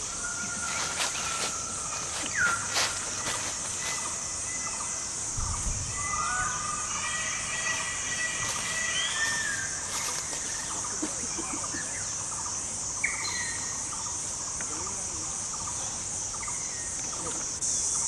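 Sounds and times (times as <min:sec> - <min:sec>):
high insect drone: 0:00.0 - 0:18.0
birds whistling: 0:00.3 - 0:12.2, 0:13.0 - 0:13.8.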